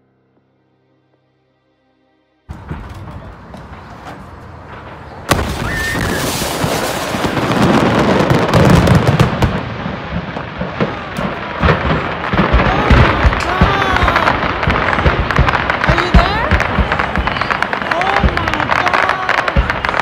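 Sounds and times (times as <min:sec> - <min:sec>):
fireworks pops: 0:02.5 - 0:09.6, 0:10.6 - 0:20.0
fireworks crackling and banging: 0:02.5 - 0:20.0
loud blast: 0:02.5 - 0:20.0.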